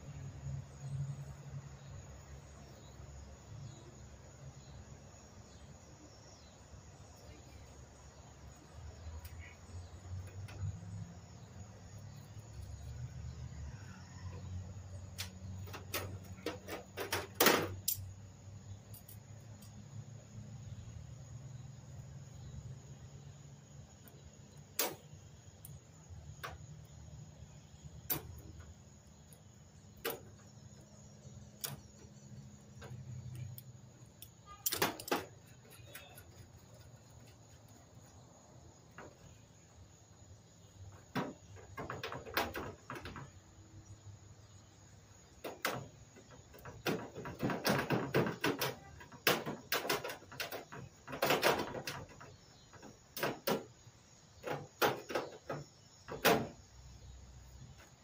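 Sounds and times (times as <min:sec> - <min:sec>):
tools and metal parts clinking: 0:15.6 - 0:18.2, 0:18.8 - 0:19.7, 0:32.8 - 0:37.5.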